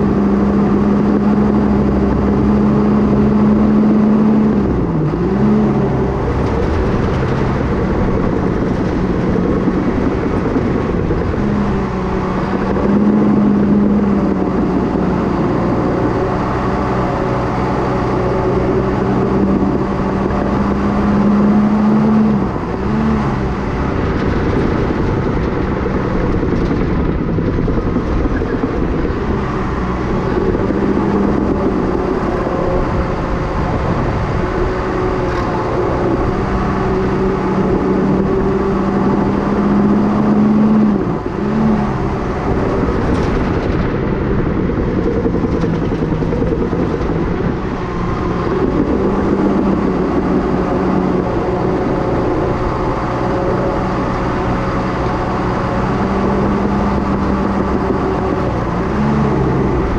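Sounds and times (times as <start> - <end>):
bulldozer diesel engine under load: 0.0 - 59.9.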